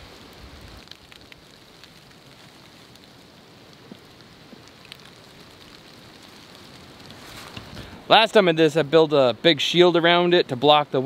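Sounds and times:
coals crackling and hissing: 0.0 - 11.0
fire popping: 0.0 - 11.0.

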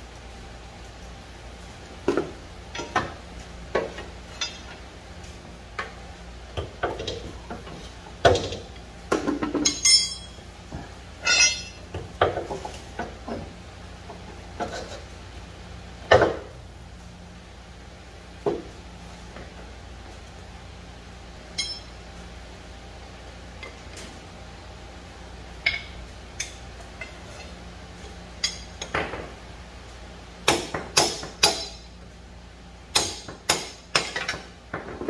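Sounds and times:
high metallic ring: 9.6 - 10.4, 11.2 - 11.8, 21.5 - 22.0
metal tools clanking: 9.6 - 10.4, 11.2 - 11.8, 21.6 - 22.0.

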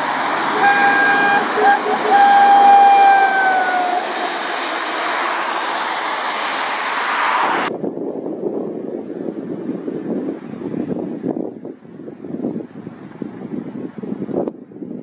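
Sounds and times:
distant lorry rumble: 0.0 - 7.7
lorry engine passing: 0.0 - 7.7
tyres hissing on wet road: 0.0 - 7.7
wind on microphone: 0.0 - 15.0.

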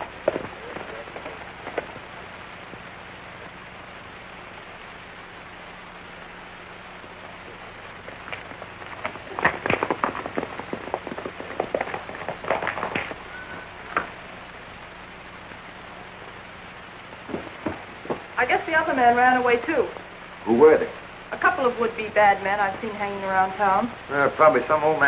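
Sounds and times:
horse hooves clattering: 0.0 - 2.9, 7.4 - 14.3, 17.2 - 18.4
film soundtrack hiss: 0.0 - 25.0.

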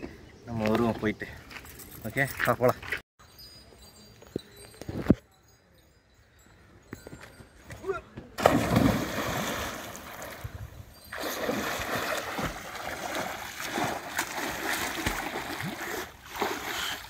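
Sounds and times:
person diving into water: 8.4 - 17.0
swimming splashes: 8.4 - 17.0.

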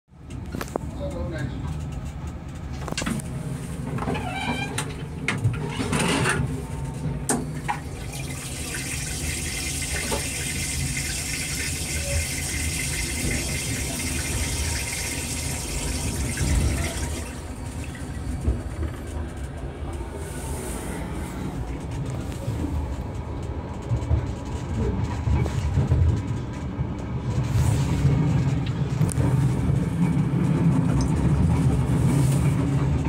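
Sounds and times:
low train rumble: 0.1 - 33.0
toilet flushing hiss: 7.7 - 18.1.

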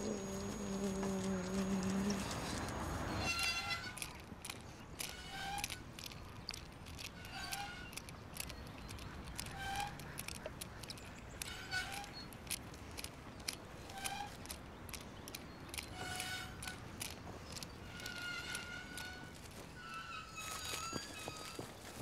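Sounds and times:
faint clicks: 0.0 - 19.7
playground roundabout squeaking: 0.0 - 21.9.

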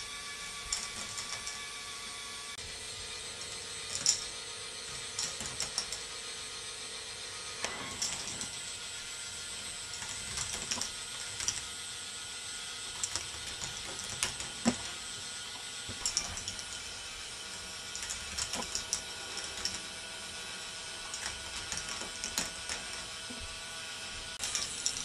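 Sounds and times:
steady mechanical whir: 0.0 - 25.0
plastic balls clattering on track: 18.0 - 19.9.

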